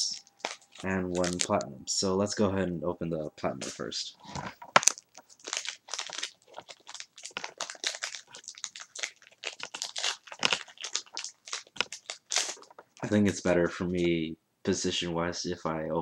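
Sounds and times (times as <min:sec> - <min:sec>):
foil wrapper crinkling: 0:00.0 - 0:01.6, 0:04.6 - 0:13.1.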